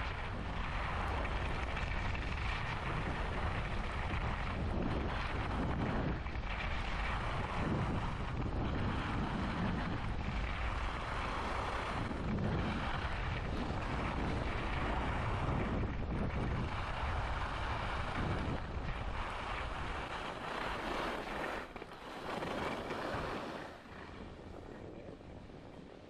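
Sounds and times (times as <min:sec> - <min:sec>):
wind rushing over microphone: 0:00.0 - 0:26.0
skis sliding on snow: 0:00.1 - 0:25.8.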